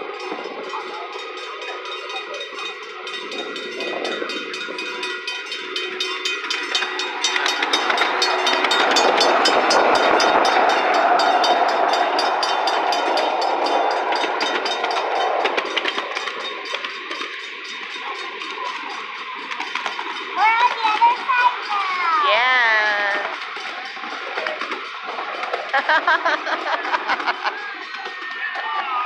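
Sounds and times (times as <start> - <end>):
train wheels clicking over rails: 0.0 - 22.2
miniature train rumble: 0.0 - 29.0.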